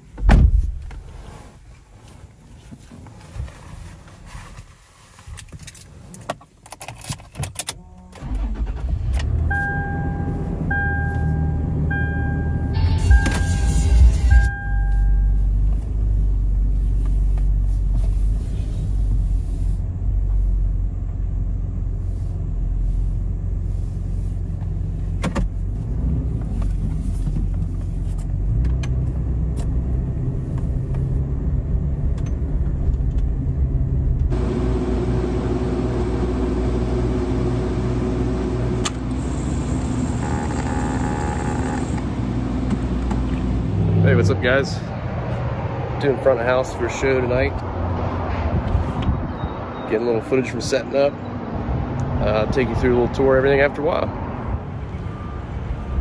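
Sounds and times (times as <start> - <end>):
dashboard warning chime beeping: 9.5 - 15.5, 39.1 - 42.0
car engine running: 20.3 - 44.9.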